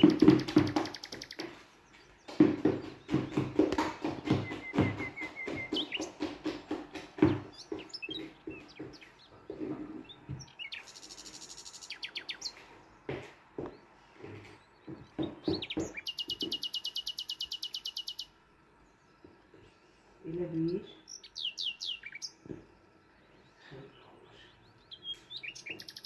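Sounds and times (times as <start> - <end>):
bird trill: 0.0 - 1.7, 4.2 - 6.3, 10.0 - 12.6, 14.9 - 18.4, 20.6 - 22.4, 24.4 - 26.0
small birds chirping: 0.0 - 26.0.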